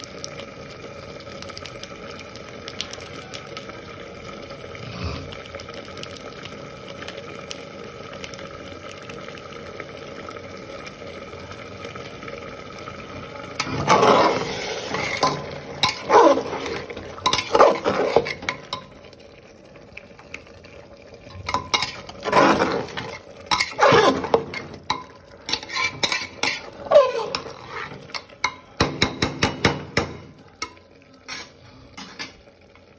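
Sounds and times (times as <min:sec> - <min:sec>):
spoon scraping in metal pot: 0:13.6 - 0:18.9, 0:21.5 - 0:28.3, 0:31.2 - 0:32.4.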